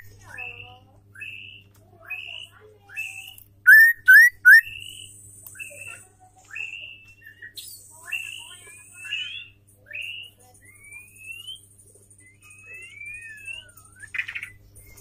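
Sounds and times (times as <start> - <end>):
high buzzing bird calls: 0.0 - 6.0
bird whistling and chirping: 2.2 - 5.9, 6.6 - 11.6, 12.2 - 14.6.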